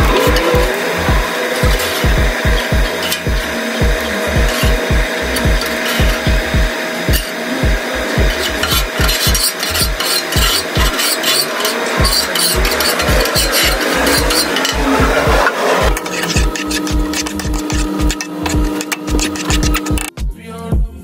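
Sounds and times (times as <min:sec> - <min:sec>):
deep bass drum hits: 0:00.0 - 0:08.4
hi-hat clicks: 0:00.0 - 0:20.3
hip-hop music: 0:00.0 - 0:21.0.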